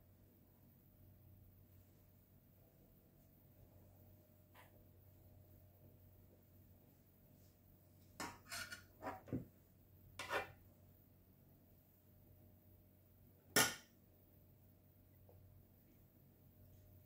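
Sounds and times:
spoon scraping saucepan: 0:08.2 - 0:09.3, 0:10.2 - 0:10.6.

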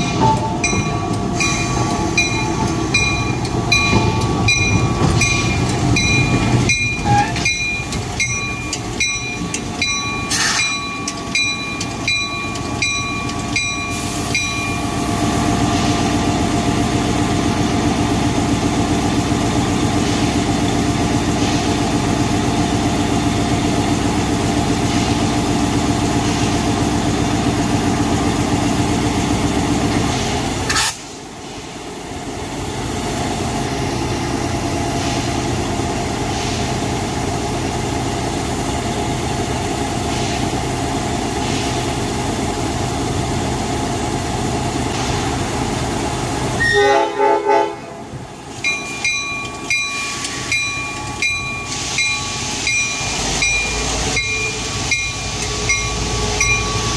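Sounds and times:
locomotive bell ringing: 0:00.0 - 0:15.1, 0:48.5 - 0:56.9
diesel locomotive idling: 0:00.0 - 0:56.9
locomotive horn blast: 0:46.6 - 0:48.2.

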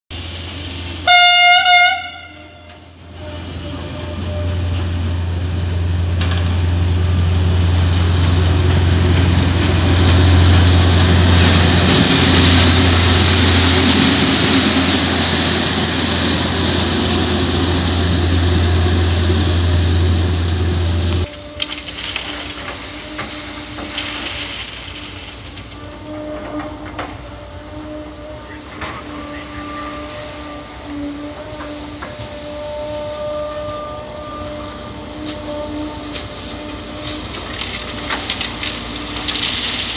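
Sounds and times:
wagons passing: 0:02.9 - 0:39.9
diesel engine running: 0:03.8 - 0:25.6.

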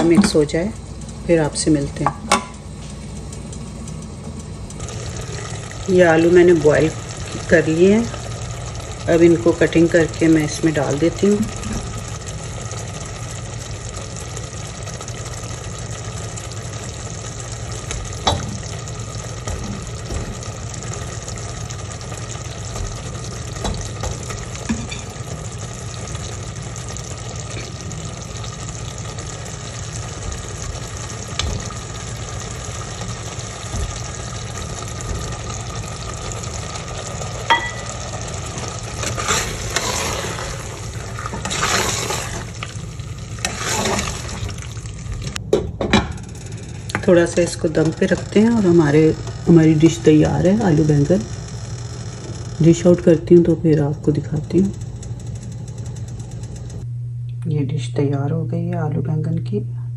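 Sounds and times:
curry simmering and sizzling: 0:02.5 - 0:45.5.

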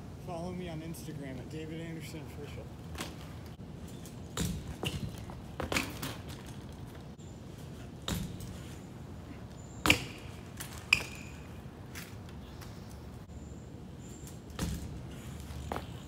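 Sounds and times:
bike knocking and clattering: 0:02.9 - 0:07.2, 0:07.8 - 0:08.8, 0:09.8 - 0:12.3, 0:14.1 - 0:16.0.

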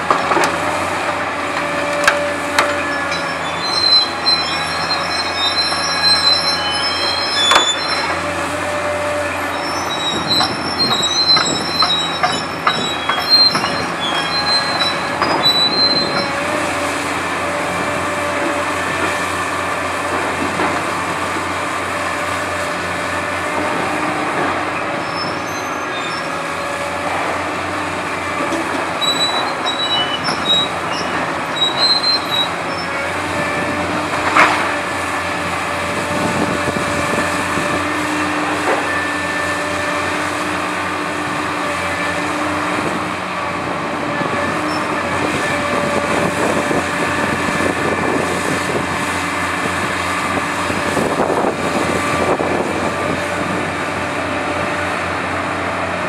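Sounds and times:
diesel engine running: 0:00.0 - 0:56.0
steel screeching and squealing: 0:01.5 - 0:19.0, 0:23.6 - 0:34.9, 0:35.9 - 0:40.6, 0:44.0 - 0:54.0.

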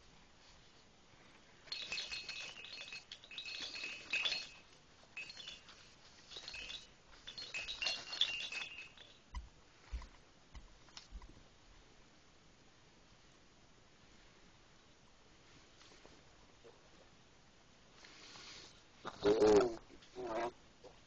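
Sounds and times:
metallic jingling: 0:01.6 - 0:09.4.

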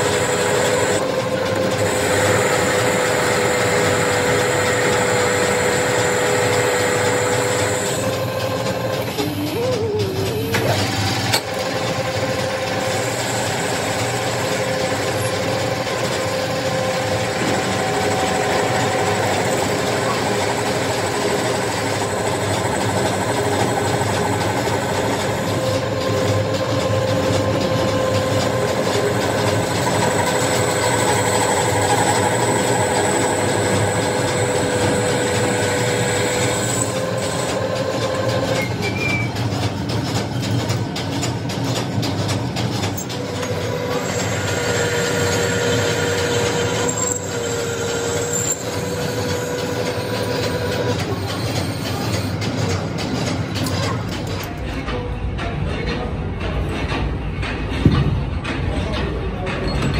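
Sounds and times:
metal lathe machining: 0:00.0 - 0:59.9
high squeal from cutting tool: 0:38.5 - 0:39.4, 0:43.4 - 0:52.4.

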